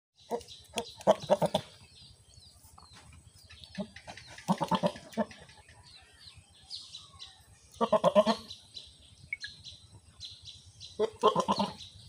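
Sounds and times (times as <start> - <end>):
goat grunting: 0.3 - 1.9, 3.8 - 5.6, 7.8 - 8.5, 11.0 - 12.0.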